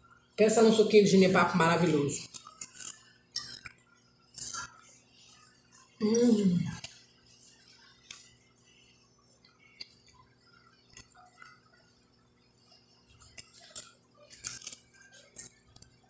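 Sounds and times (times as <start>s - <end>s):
chewing: 2.2s - 6.0s, 9.4s - 16.0s.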